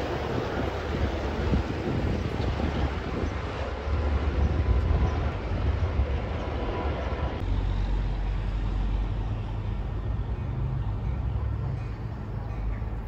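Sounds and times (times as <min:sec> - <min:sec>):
wind on microphone: 0:00.0 - 0:07.5
diesel freight train rumble: 0:00.0 - 0:13.0.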